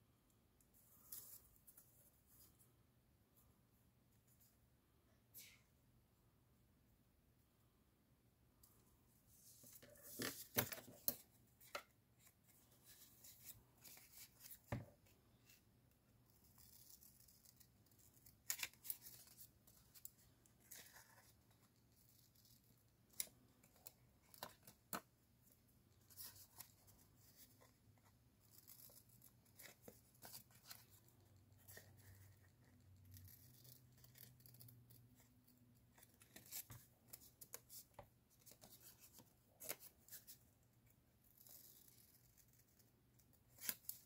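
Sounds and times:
paper rustling: 9.4s - 14.8s.

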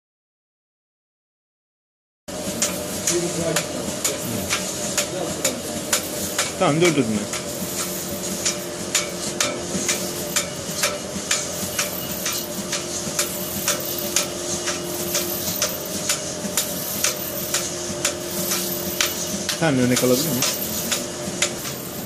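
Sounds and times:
machine hum: 2.3s - 22.0s
sharp machine clicks: 2.6s - 22.0s.

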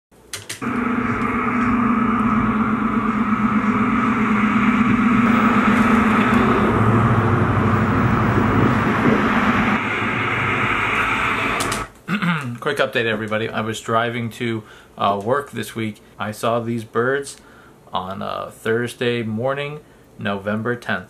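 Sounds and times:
vehicles passing on road: 0.6s - 10.0s
deeper engine sound: 0.6s - 11.9s.

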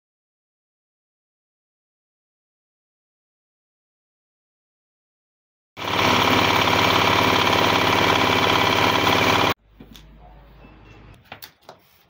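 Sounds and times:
electric planer running: 5.8s - 9.6s.

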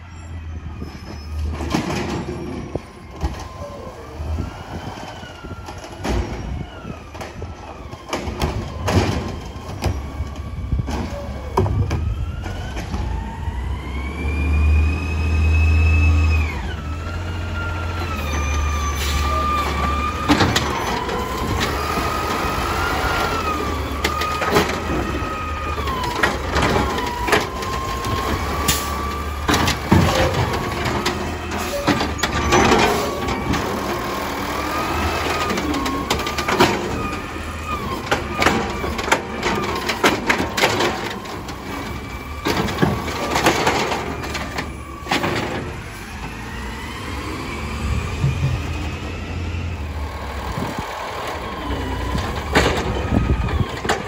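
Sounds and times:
garbage truck engine rumble: 0.0s - 54.0s.

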